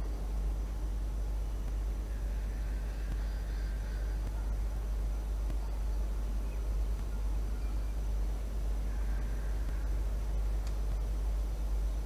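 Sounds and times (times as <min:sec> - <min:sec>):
low rumble and hiss: 0:00.0 - 0:12.0.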